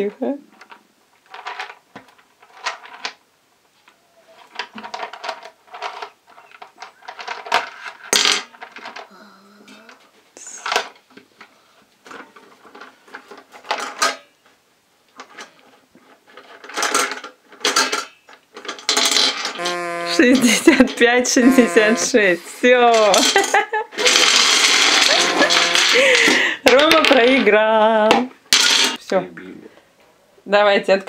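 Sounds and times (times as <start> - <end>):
candies clattering into metal pot: 16.6 - 27.6, 28.5 - 29.0.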